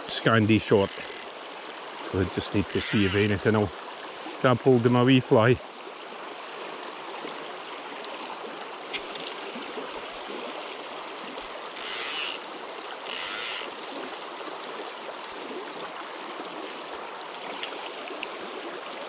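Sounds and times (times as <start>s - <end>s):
river water rushing: 0.0s - 3.8s, 5.8s - 19.0s
fishing reel ratchet buzzing: 0.7s - 1.2s, 2.6s - 3.4s, 11.8s - 14.2s.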